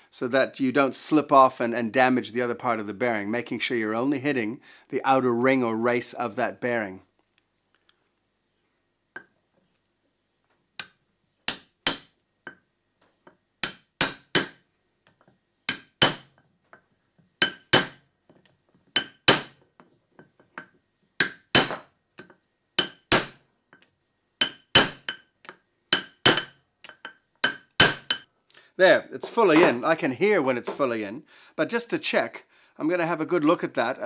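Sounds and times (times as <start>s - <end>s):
hammer striking steel punch: 11.5s - 12.1s, 13.6s - 14.6s, 15.7s - 16.3s, 17.4s - 18.0s, 19.0s - 19.6s, 21.2s - 21.9s, 22.8s - 23.4s, 24.4s - 25.2s, 25.9s - 28.2s.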